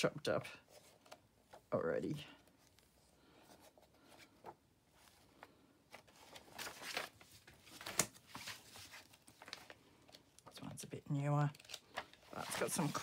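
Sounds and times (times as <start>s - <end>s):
book pages turning: 2.4s - 10.6s, 11.4s - 13.0s.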